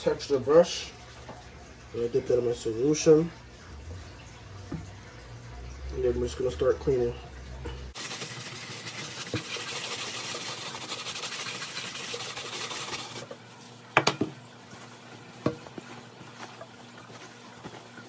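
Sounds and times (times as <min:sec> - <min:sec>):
brush scrubbing a sneaker: 0:08.0 - 0:13.3, 0:14.6 - 0:18.0.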